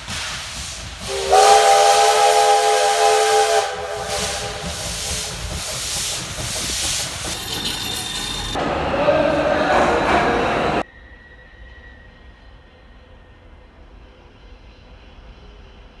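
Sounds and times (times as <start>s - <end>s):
steam hiss and exhaust: 0.0s - 8.8s
steam locomotive whistle: 1.0s - 5.5s.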